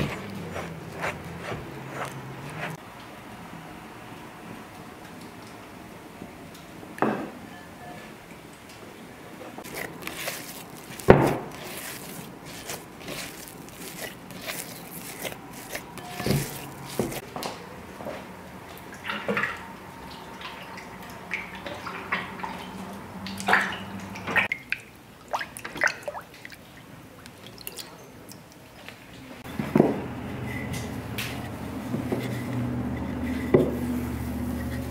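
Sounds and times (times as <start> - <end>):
hands splashing in water: 9.6 - 17.2
water dripping: 18.7 - 28.7.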